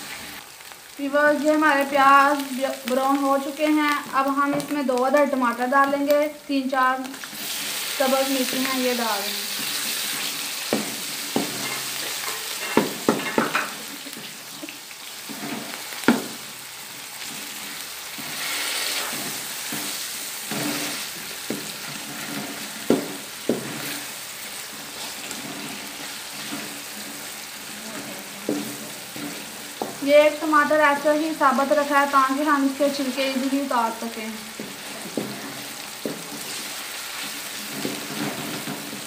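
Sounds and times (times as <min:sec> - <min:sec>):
vegetables sizzling in hot fat: 0:00.0 - 0:39.0
wooden spatula knocking against pan: 0:12.8 - 0:13.7, 0:16.1 - 0:16.4, 0:22.8 - 0:23.8.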